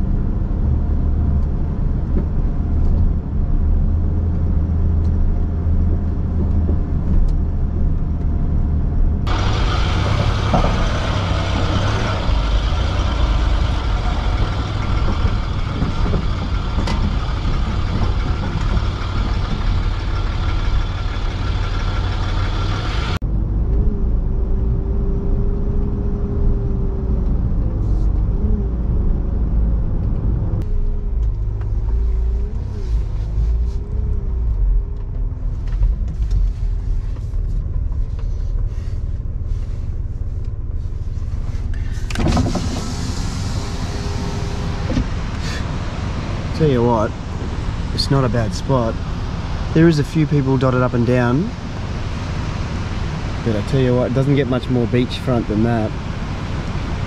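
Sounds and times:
engine and tyre rumble: 0.0 - 57.0
wind and road noise hiss: 35.4 - 57.0.

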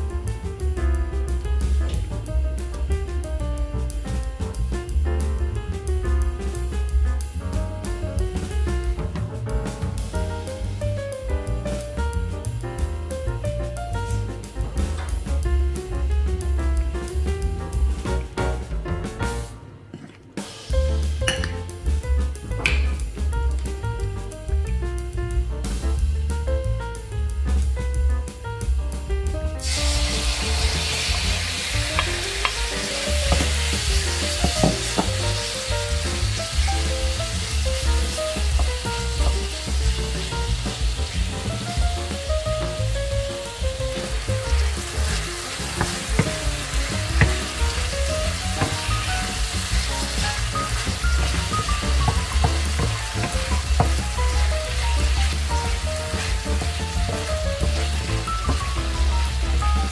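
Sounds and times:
music with pulsing bass: 0.0 - 19.4, 20.7 - 59.9
meat sizzling in oil: 29.6 - 59.9
wooden spatula turning meat: 30.3 - 41.3, 42.0 - 59.9.

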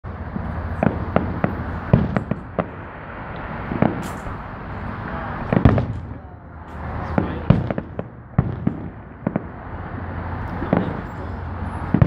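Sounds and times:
firework shells bursting: 0.4 - 4.5.

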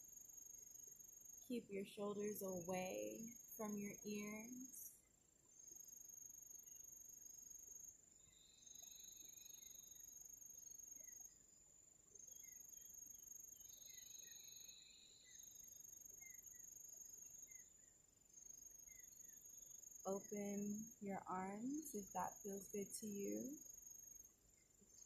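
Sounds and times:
faint chirps: 0.0 - 25.0
insects trilling: 5.5 - 25.0
low insect buzz: 5.5 - 25.0.

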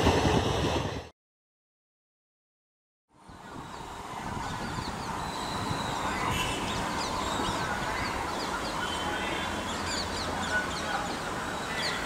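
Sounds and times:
distant train rumble: 0.0 - 1.1, 3.2 - 12.0
birds chirping: 3.4 - 12.0.

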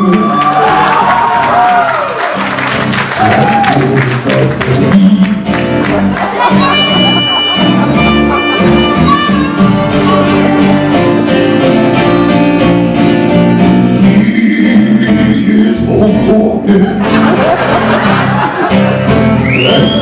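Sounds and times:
man singing: 0.0 - 1.2, 3.1 - 6.0, 13.3 - 17.3, 19.6 - 20.0
acoustic guitar strumming: 4.2 - 20.0.

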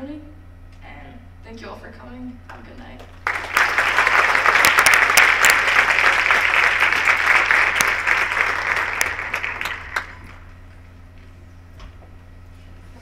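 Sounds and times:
steady low hum: 0.0 - 13.0
audience applauding: 3.2 - 10.5.

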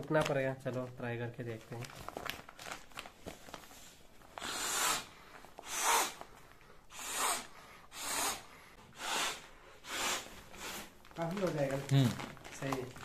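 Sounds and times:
breath puffs into mattress valve: 4.4 - 11.0.

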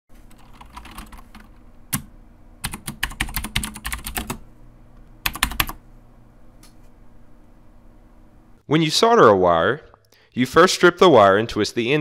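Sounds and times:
computer keyboard typing: 0.3 - 4.4, 5.2 - 5.8.

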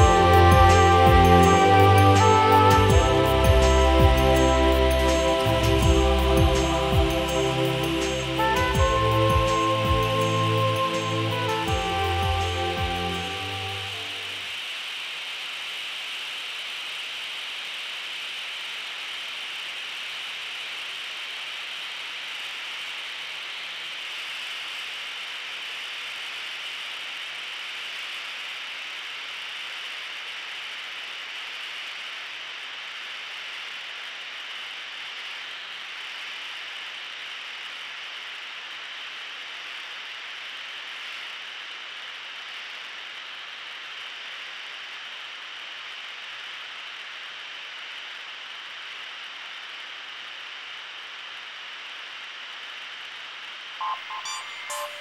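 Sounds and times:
faint engine hum: 0.0 - 14.5
rushing airflow hiss: 0.0 - 26.5.

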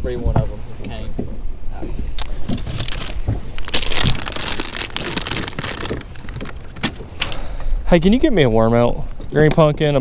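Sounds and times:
plastic bag crinkling: 2.6 - 7.0.

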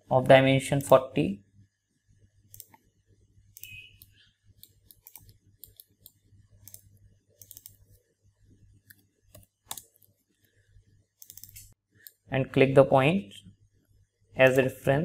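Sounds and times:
mouse and keyboard clicks: 2.5 - 2.8, 3.6 - 8.0, 8.8 - 10.2, 11.2 - 12.2.

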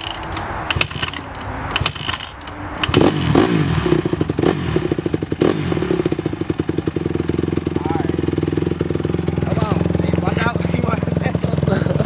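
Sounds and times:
kickstarter clatter: 0.0 - 3.4
dirt bike engine running: 0.0 - 12.0.

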